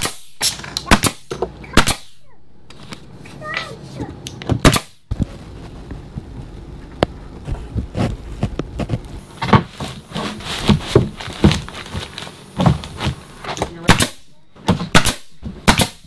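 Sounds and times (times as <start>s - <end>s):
nail gun firing: 0.0s - 2.2s, 4.6s - 5.0s, 13.8s - 14.2s, 14.8s - 16.0s
wooden boards knocking and thumping: 9.4s - 11.7s.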